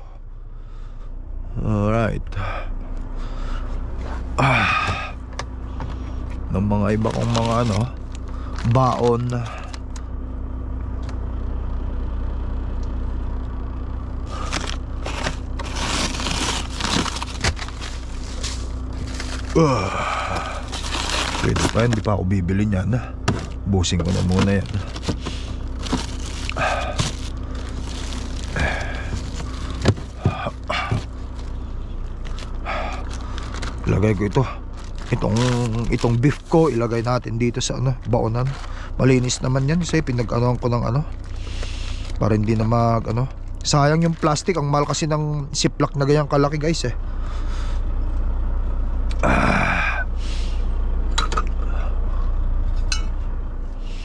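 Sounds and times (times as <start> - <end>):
steady low hum: 0.0 - 54.0
truck engine idling: 0.0 - 54.0.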